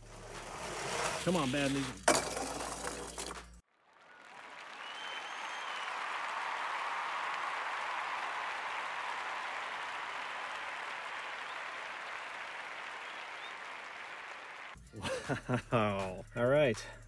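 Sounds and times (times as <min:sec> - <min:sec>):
crowd applause and cheering: 0:03.8 - 0:14.8.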